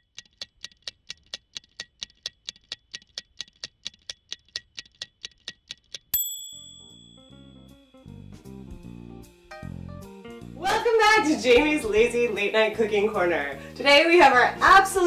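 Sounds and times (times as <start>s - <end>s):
rapid clock ticking: 0.0s - 6.2s
bright bell ding: 6.2s - 7.8s.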